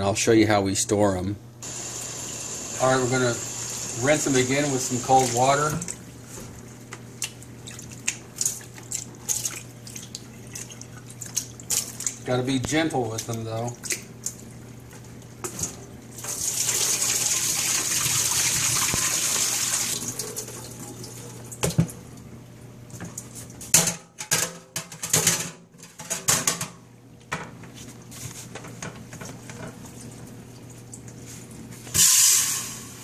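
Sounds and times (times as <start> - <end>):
water splashing into metal sink: 4.0 - 6.0, 7.2 - 14.5, 15.4 - 22.0.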